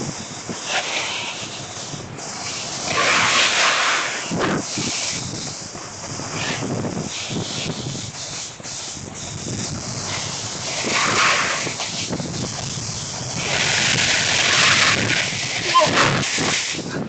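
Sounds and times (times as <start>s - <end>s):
snowboard scraping over snow: 0.0s - 17.0s
wind rushing across microphone: 0.0s - 17.0s.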